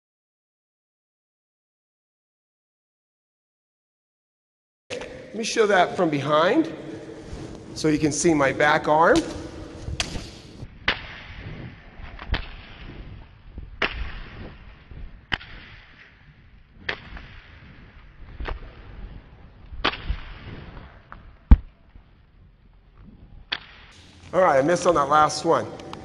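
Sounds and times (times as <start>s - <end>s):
jump rope slapping gym floor: 12.0s - 18.8s.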